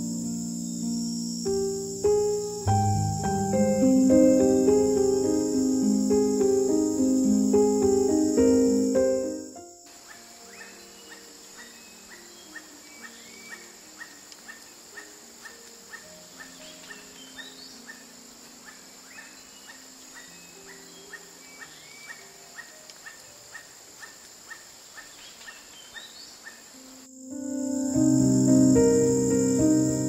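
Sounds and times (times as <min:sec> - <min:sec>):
high insect hiss: 0:00.0 - 0:30.0.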